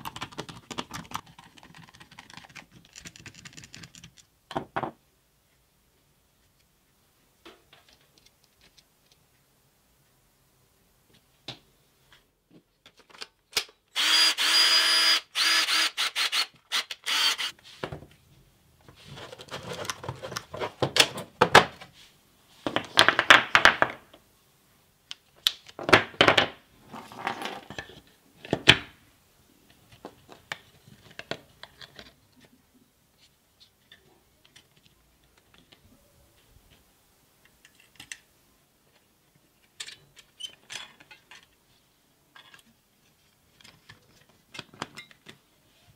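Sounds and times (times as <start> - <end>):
power tool motor running: 14.0 - 17.5
battery parts rattling and scraping: 18.8 - 21.6.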